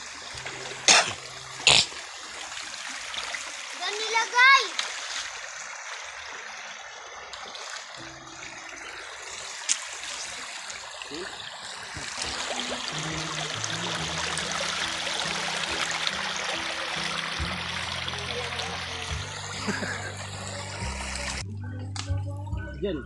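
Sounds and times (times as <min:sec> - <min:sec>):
background music low notes: 0:00.0 - 0:02.2, 0:11.1 - 0:23.0
stream trickling over rocks: 0:00.0 - 0:21.4.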